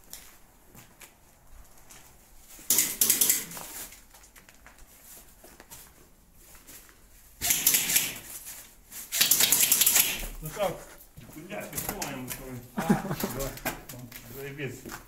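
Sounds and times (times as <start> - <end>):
airsoft guns firing bursts: 2.7 - 3.6, 7.4 - 8.3, 9.1 - 10.4.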